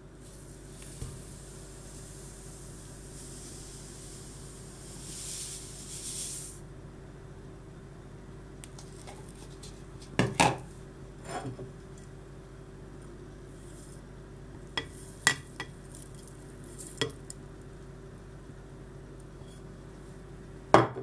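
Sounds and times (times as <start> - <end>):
sugar pouring into glass jug: 0.2 - 6.6, 14.8 - 17.2.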